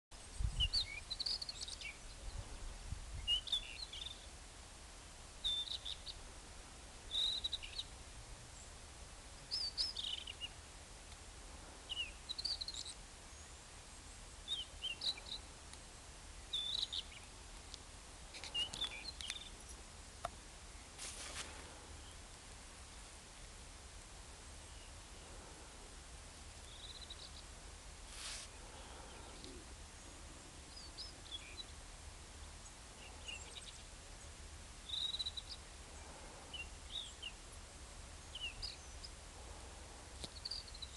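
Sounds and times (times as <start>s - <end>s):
bird singing high phrases: 7.1s - 7.9s, 16.4s - 17.3s, 34.9s - 35.6s.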